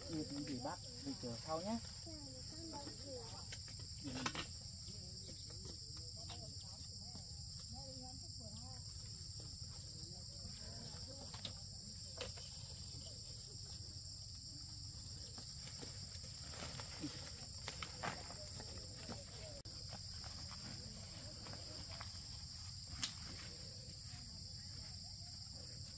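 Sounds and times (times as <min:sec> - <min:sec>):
insects chirring: 0:00.0 - 0:25.9.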